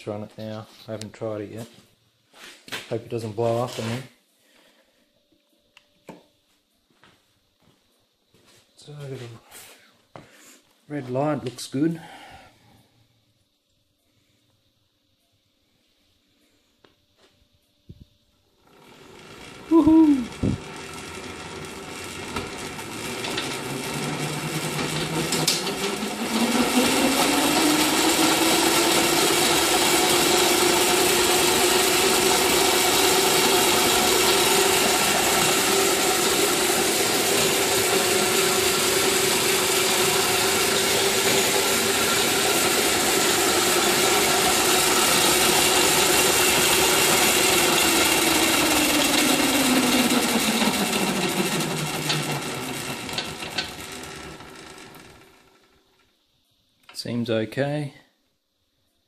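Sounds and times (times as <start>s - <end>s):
electric motor whine: 18.6s - 55.8s.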